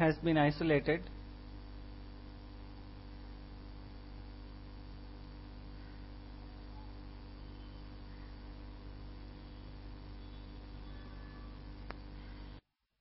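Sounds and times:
electrical mains hum: 0:00.0 - 0:12.6.

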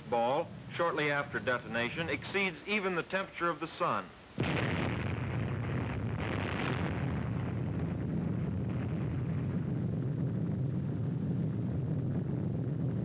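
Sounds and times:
low rumble: 0:04.4 - 0:13.0.

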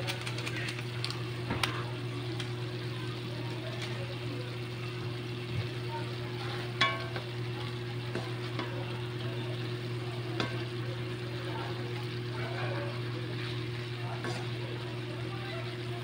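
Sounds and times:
food sizzling in a pan: 0:00.2 - 0:16.0.

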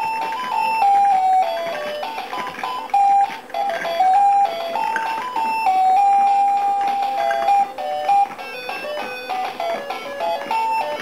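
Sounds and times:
electronic beeping melody: 0:02.7 - 0:09.5.

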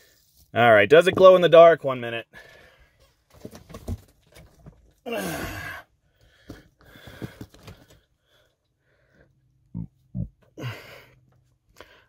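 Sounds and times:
person sighing: 0:05.0 - 0:05.8, 0:09.8 - 0:11.2.

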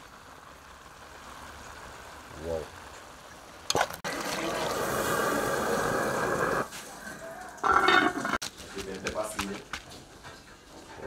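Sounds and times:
food sizzling in a pot: 0:00.0 - 0:08.4
pot lid scraping and ringing: 0:07.6 - 0:08.4.

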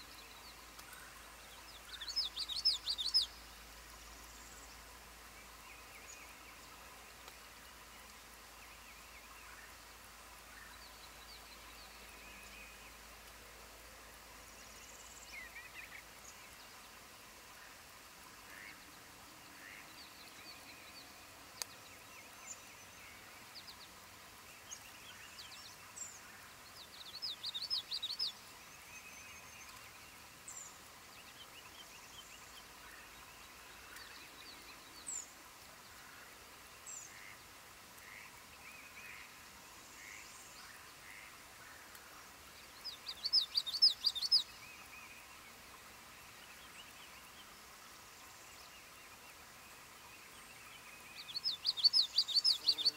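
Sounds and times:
bird song of rapid high notes: 0:42.8 - 0:44.9, 0:50.6 - 0:52.9.

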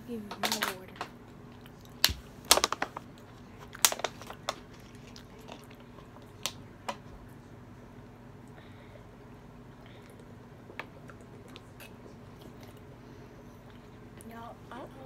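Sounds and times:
plastic water bottle crackling: 0:02.0 - 0:03.1, 0:03.7 - 0:05.7.

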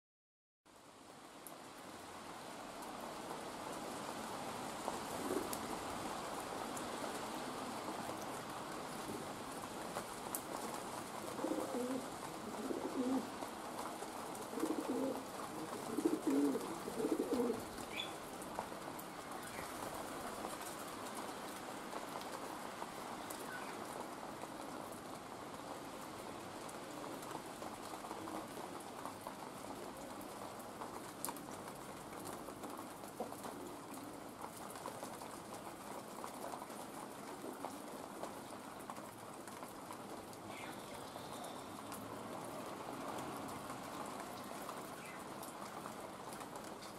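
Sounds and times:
rain hissing: 0:00.7 - 0:31.6, 0:37.1 - 0:46.9
pigeon cooing: 0:11.3 - 0:13.3, 0:14.5 - 0:18.1.

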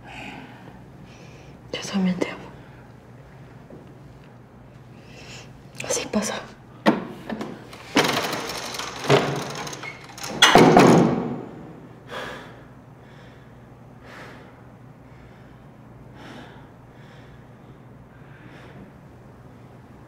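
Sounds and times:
latch and door knocks: 0:08.0 - 0:11.4
door shutting with a bang: 0:09.0 - 0:11.5.

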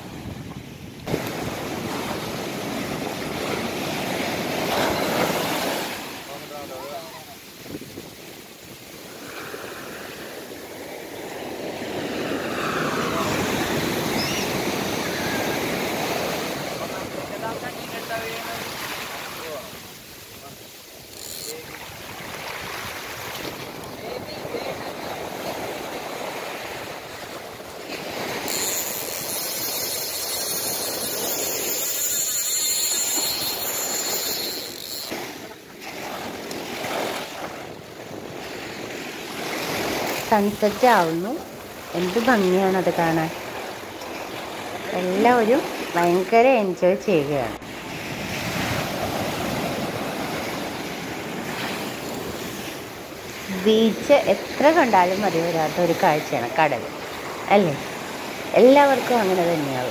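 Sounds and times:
wave breaking: 0:00.0 - 0:58.9.

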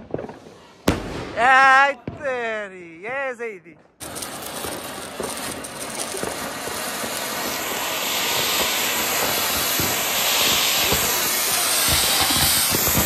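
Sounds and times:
firework spraying sparks hissing: 0:04.0 - 0:13.0.

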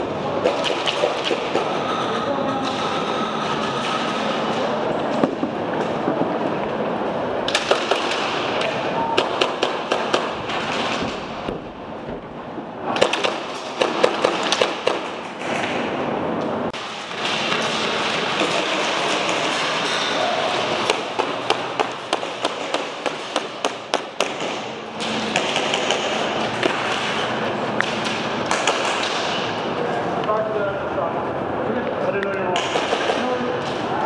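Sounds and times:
steady rushing background noise: 0:00.0 - 0:34.0
airsoft guns firing: 0:09.2 - 0:11.0, 0:13.0 - 0:15.1, 0:20.8 - 0:24.7, 0:25.3 - 0:27.2, 0:27.8 - 0:29.4.

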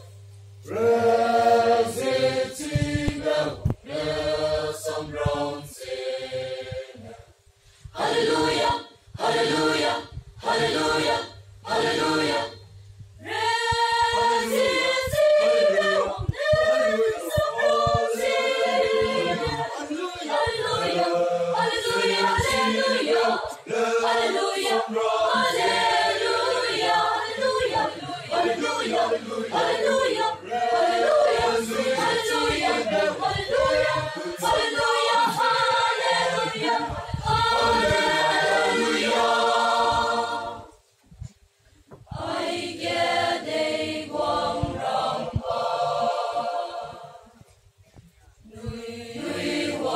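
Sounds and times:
mixed choir singing: 0:00.7 - 0:07.3, 0:07.9 - 0:40.8, 0:42.0 - 0:47.5, 0:48.5 - 0:49.9.

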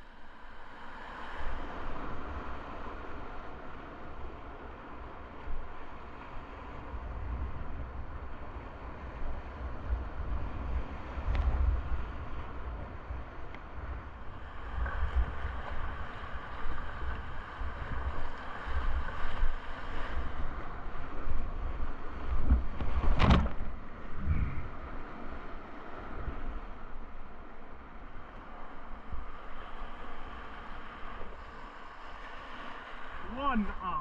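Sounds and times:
wind gusting on microphone: 0:01.6 - 0:27.8.

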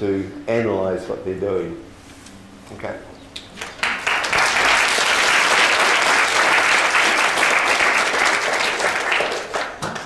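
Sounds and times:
audience applauding: 0:03.6 - 0:10.0.

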